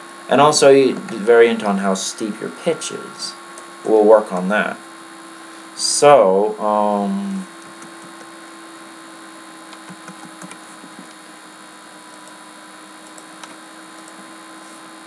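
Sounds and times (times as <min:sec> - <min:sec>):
mains hum and hiss: 0:00.0 - 0:15.0
computer mouse clicks: 0:07.6 - 0:08.3, 0:09.7 - 0:11.2.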